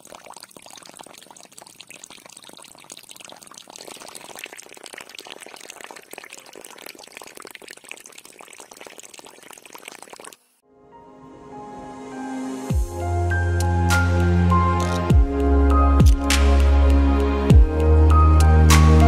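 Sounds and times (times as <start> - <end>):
water spraying and splashing: 0.0 - 10.6.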